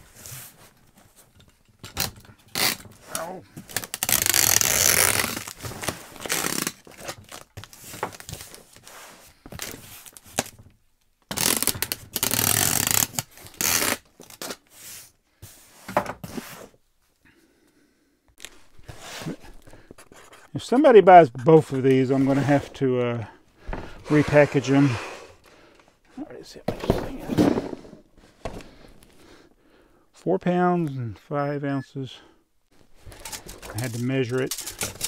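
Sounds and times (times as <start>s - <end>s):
packing materials rustling: 2.0s - 10.6s, 18.4s - 20.6s, 32.8s - 35.0s.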